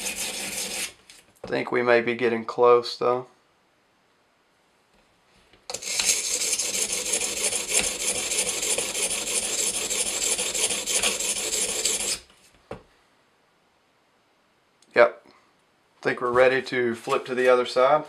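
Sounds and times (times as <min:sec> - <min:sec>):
stone scraping knife blade: 0:00.0 - 0:01.0, 0:05.7 - 0:12.3.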